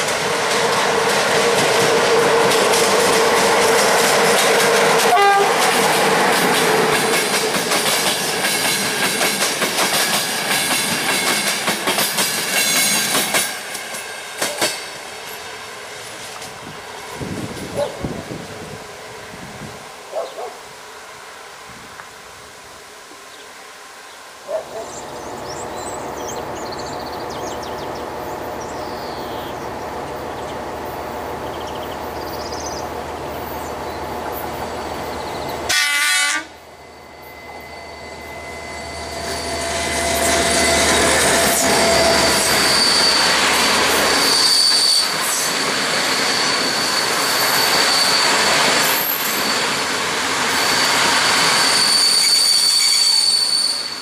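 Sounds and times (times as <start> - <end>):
train rumble and clatter: 0.0 - 20.5, 25.0 - 54.0
train horn blast: 4.9 - 5.8, 35.7 - 43.4
locomotive engine drone: 36.5 - 44.5
wheel squeal: 37.0 - 49.8, 50.5 - 54.0.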